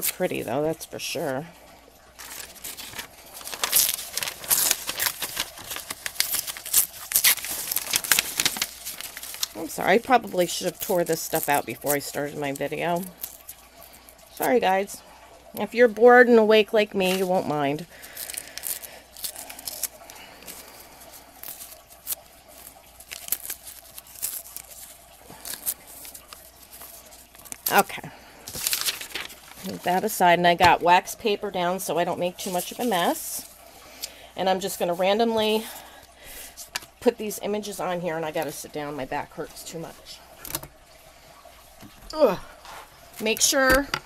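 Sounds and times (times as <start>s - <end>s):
paper tearing: 2.2s - 12.2s, 21.4s - 27.8s, 28.5s - 29.9s
paper rustling: 2.2s - 13.6s, 17.0s - 30.8s, 32.4s - 33.5s.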